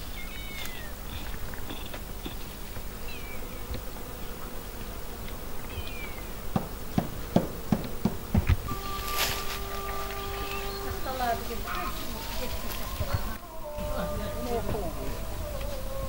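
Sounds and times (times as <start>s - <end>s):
faint bird chirps: 0.0s - 2.0s, 3.0s - 3.7s, 5.6s - 6.4s, 8.7s - 16.0s
bee buzzing: 0.0s - 16.0s.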